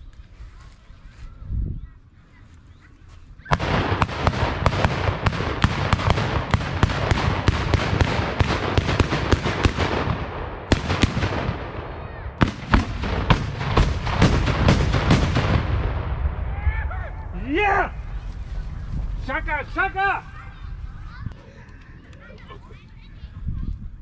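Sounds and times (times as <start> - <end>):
continuous rumble: 0.0 - 24.0
salute guns firing: 3.5 - 16.0.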